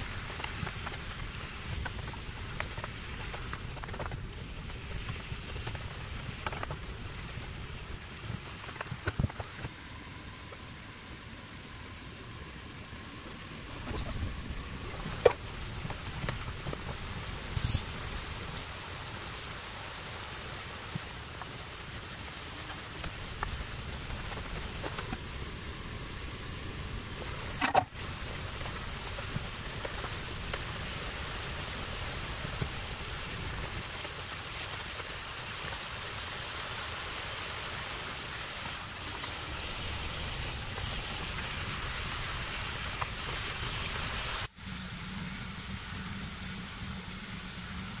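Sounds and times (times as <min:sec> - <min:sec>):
low hum: 0:00.0 - 0:19.5.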